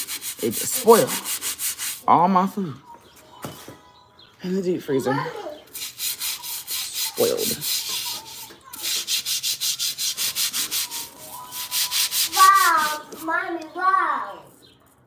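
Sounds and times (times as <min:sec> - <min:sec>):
scrubbing on concrete floor: 0:00.0 - 0:02.1, 0:05.7 - 0:13.4.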